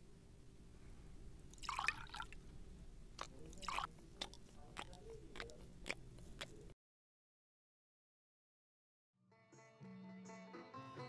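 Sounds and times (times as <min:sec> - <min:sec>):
water splashing into steel bowl: 0:01.6 - 0:02.4.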